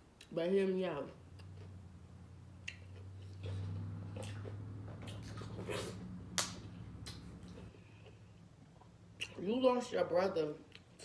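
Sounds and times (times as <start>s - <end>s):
steady low hum: 0.0s - 11.0s
wet chewing and smacking: 2.6s - 9.4s.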